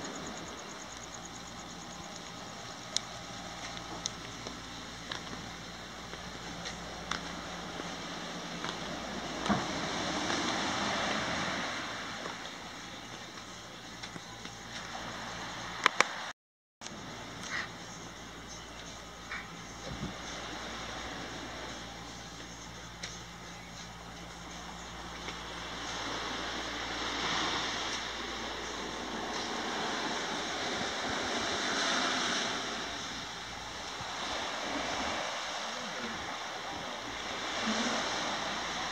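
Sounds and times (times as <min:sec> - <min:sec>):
surf washing in: 0:00.0 - 0:14.1, 0:14.7 - 0:16.3, 0:19.3 - 0:23.2, 0:23.8 - 0:38.9
footsteps on stone path: 0:03.6 - 0:05.5.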